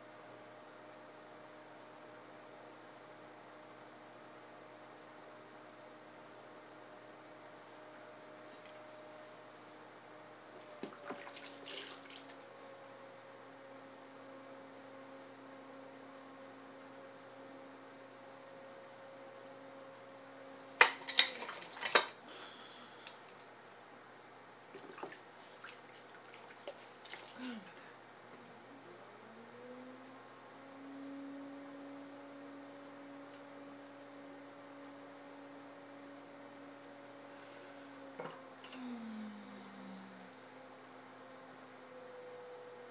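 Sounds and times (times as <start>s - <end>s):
wet clicks and splashes: 24.6s - 27.4s
pottery wheel motor hum: 26.6s - 42.9s.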